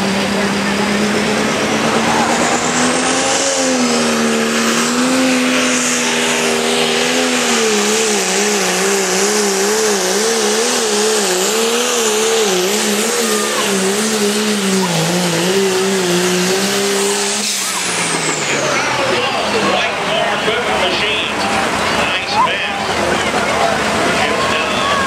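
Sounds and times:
tractor engine labouring: 0.0s - 25.0s.

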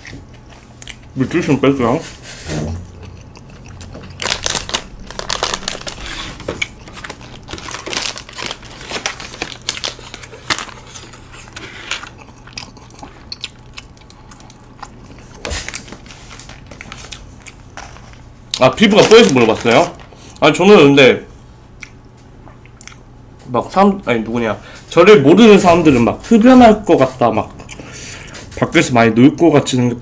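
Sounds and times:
plastic gloves crinkling: 4.0s - 12.2s, 15.2s - 20.6s.

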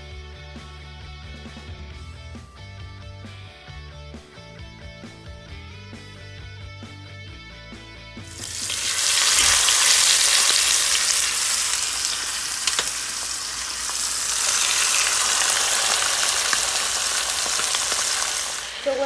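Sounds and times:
chicken sizzling in hot oil: 8.3s - 19.0s.

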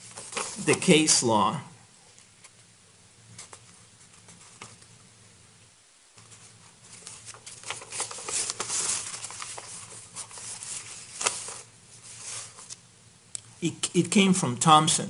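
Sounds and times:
papers rustling: 0.0s - 1.0s, 3.3s - 5.0s, 6.2s - 12.8s.

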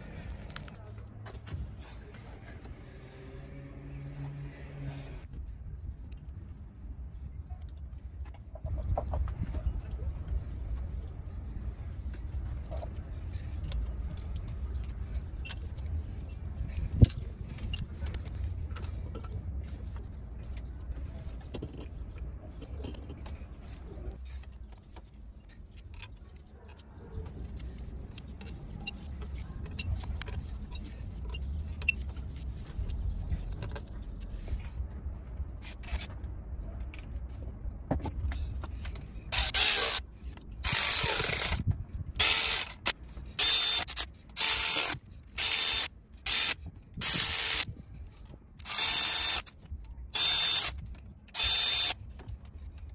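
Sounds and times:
electric ratchet bursts: 39.3s - 40.0s, 40.6s - 41.6s, 42.2s - 47.7s, 48.6s - 49.5s, 50.2s - 52.0s.

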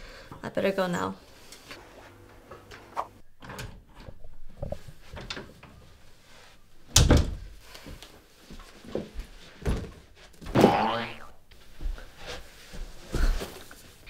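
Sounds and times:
wooden door thudding shut: 7.0s - 7.5s
soft footsteps: 7.6s - 10.5s, 11.5s - 14.0s.

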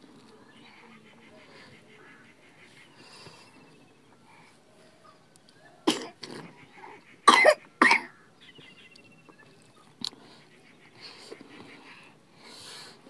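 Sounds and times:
person coughing: 7.3s - 8.1s.

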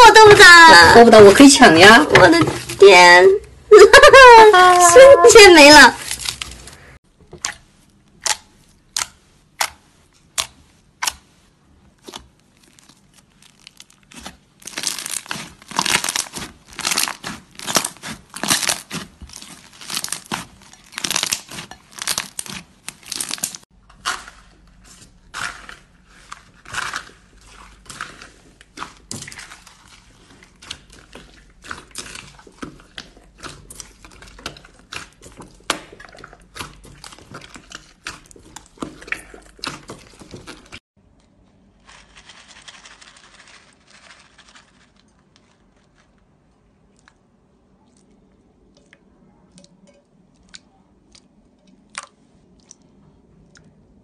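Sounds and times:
slime squelching and popping: 7.3s - 40.8s.

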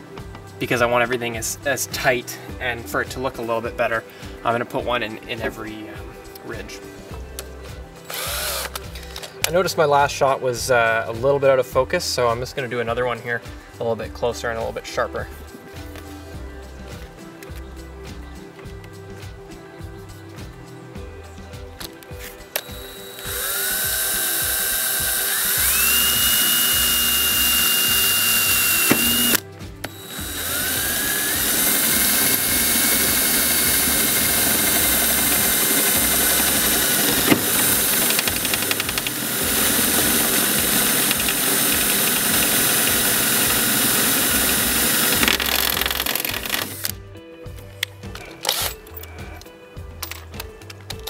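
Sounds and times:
background music with bass line: 0.0s - 51.0s
power drill drilling into metal: 8.1s - 9.2s, 22.6s - 47.0s.

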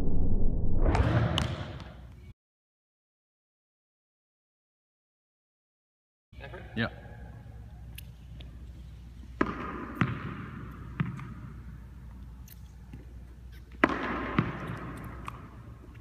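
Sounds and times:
low room hum: 6.4s - 13.8s.

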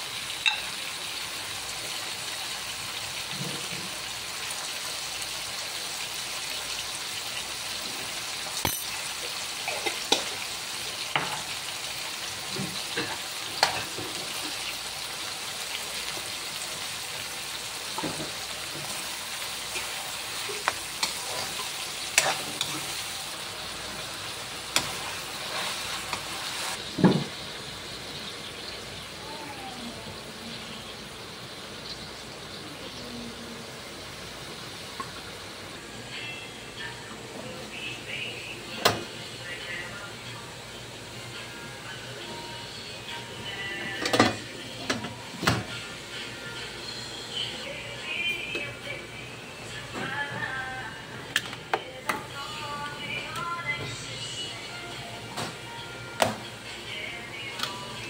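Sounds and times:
vegetables sizzling in a wok: 0.0s - 58.0s
metal ladle scraping pan: 20.6s - 23.1s.

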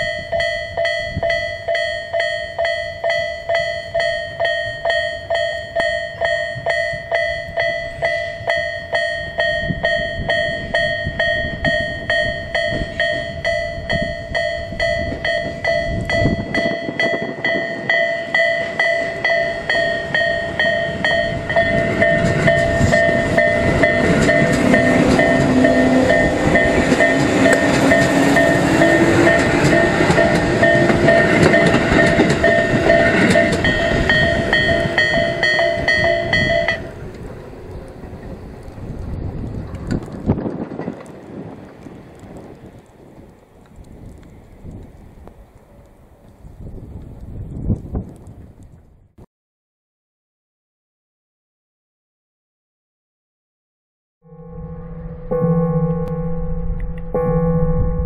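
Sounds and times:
level-crossing warning bell ringing: 0.0s - 38.4s, 54.2s - 58.0s
rising whine of train: 0.0s - 43.0s, 54.3s - 58.0s
electric train rumbling past: 0.0s - 47.2s, 54.3s - 58.0s.

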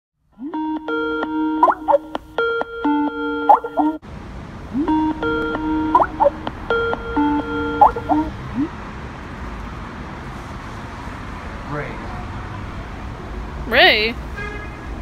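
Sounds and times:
electronic calling ringtone: 0.4s - 4.0s, 4.7s - 8.7s.

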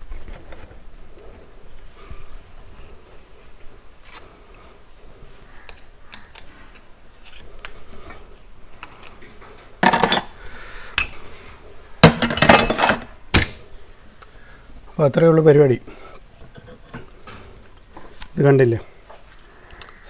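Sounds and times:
metallic clanking and jingling: 12.0s - 13.1s.

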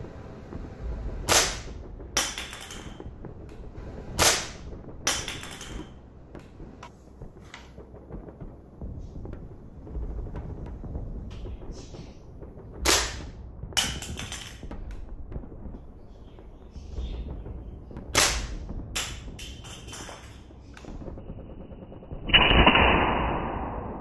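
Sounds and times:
weaker sharp crack: 0.0s - 21.4s, 22.2s - 24.0s
rifle shots: 1.2s - 6.6s, 12.8s - 14.8s, 18.0s - 21.1s, 22.3s - 24.0s.

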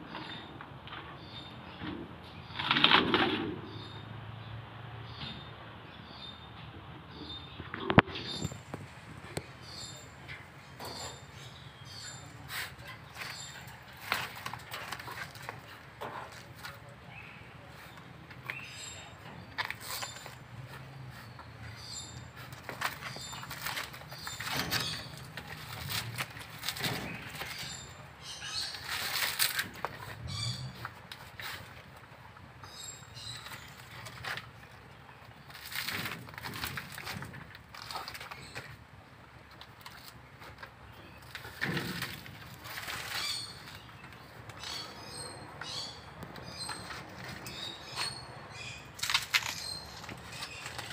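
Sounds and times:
birds chirping: 0.0s - 50.9s
bear tearing coconut husk: 49.0s - 50.9s.

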